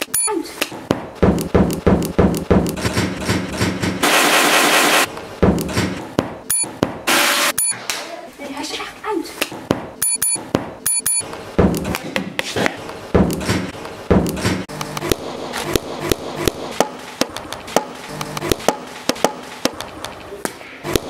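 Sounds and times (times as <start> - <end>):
uneven knocks and thumps: 0.7 - 4.0, 5.4 - 7.1, 11.6 - 14.7.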